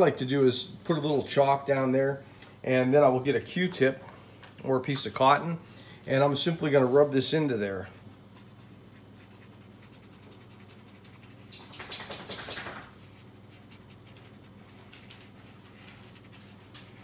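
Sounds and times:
cotton rubbing chalk on paper: 7.8s - 11.5s, 13.0s - 17.0s.

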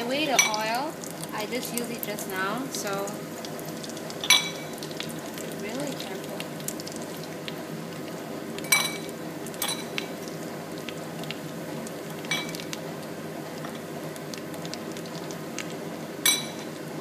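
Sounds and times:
deep-frying in hot oil: 0.0s - 17.0s.

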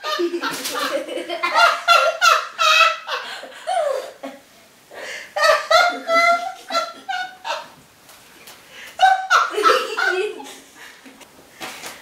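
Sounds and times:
high-pitched hearty laughter: 0.0s - 4.5s, 5.4s - 7.7s, 9.0s - 10.8s.

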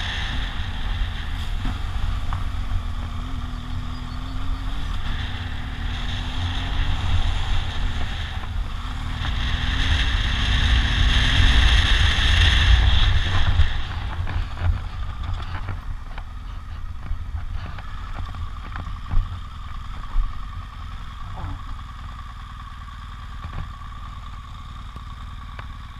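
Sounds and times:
wind noise on microphone: 0.0s - 19.3s
motorcycle engine revving: 0.0s - 25.9s
clatter over gravel: 11.6s - 21.9s.

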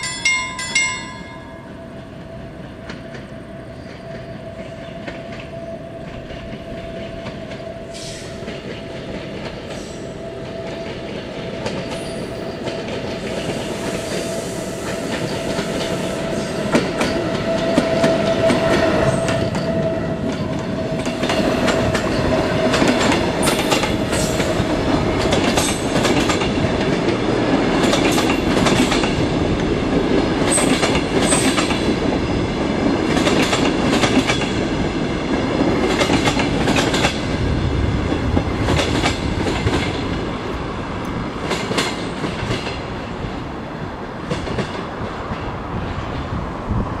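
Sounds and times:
train wheels rumbling on rail: 0.0s - 47.0s
wheels clicking over rail joints: 16.6s - 32.2s.

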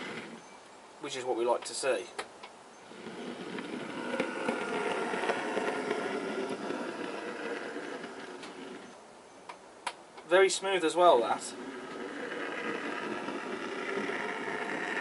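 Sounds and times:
model train motor whirring: 0.0s - 0.4s, 2.8s - 9.0s, 11.1s - 15.0s
wheels clicking on rails: 0.0s - 0.4s, 2.8s - 9.0s, 11.0s - 15.0s.

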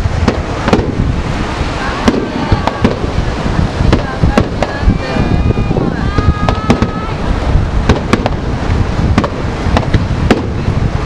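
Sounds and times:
low rumble of bursts: 0.0s - 11.0s
firework shells bursting: 0.1s - 4.9s, 7.8s - 10.6s.

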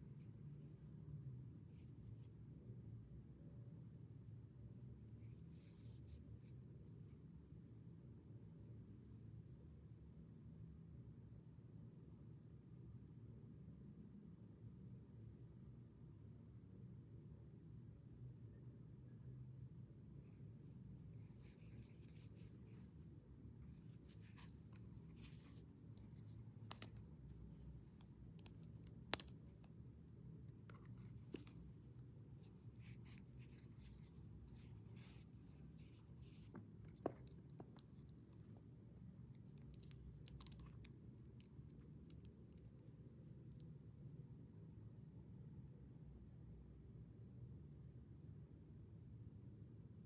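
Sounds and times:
low steady hum: 0.0s - 50.0s
small objects clicking and tapping: 26.7s - 27.0s, 28.0s - 29.8s, 39.4s - 42.3s.

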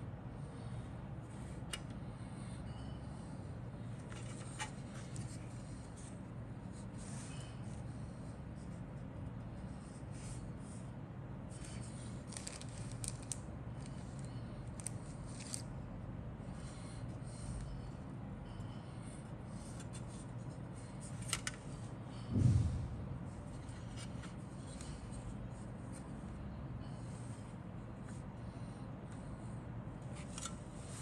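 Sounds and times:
steady low hum: 0.0s - 31.0s
dull thump: 22.3s - 23.4s.

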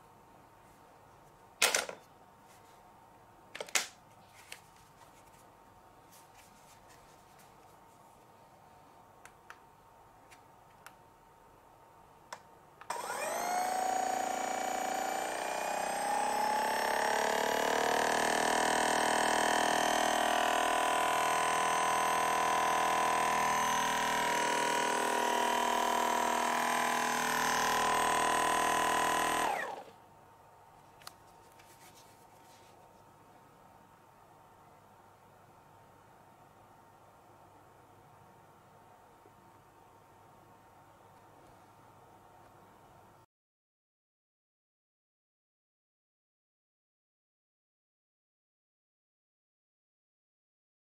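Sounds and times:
massage gun motor buzzing: 12.9s - 29.9s.

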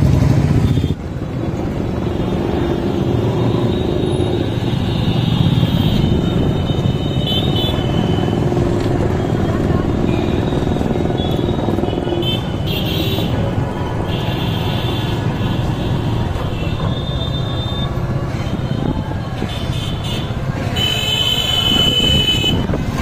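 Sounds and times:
vehicle engine and tyre rumble: 0.0s - 23.0s
car horn: 3.2s - 8.4s, 10.1s - 13.4s, 19.5s - 22.7s.

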